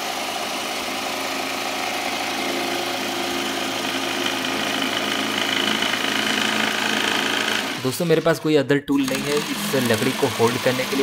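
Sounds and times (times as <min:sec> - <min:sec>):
jigsaw cutting through plywood: 0:00.0 - 0:08.4, 0:09.0 - 0:11.0.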